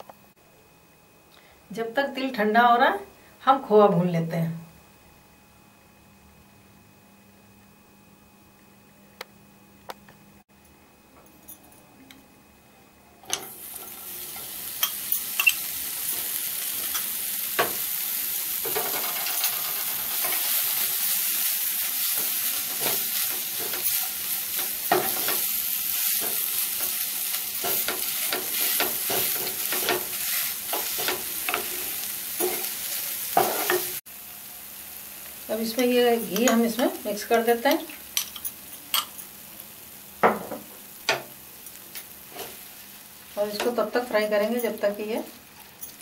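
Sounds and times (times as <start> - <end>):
food sizzling in pan: 13.3 - 46.0.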